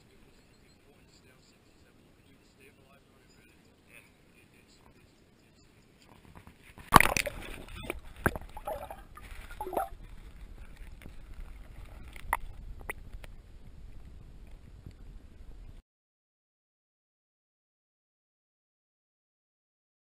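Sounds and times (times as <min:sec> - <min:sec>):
loud splash into water: 0:06.9 - 0:07.7
muffled underwater sloshing: 0:07.0 - 0:14.0.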